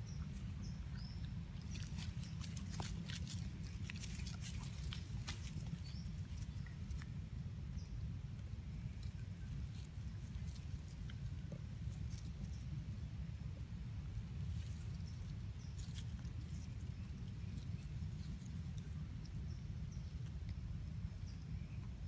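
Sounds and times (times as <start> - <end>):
dry leaves crackling: 0.2 - 7.1, 14.1 - 20.3.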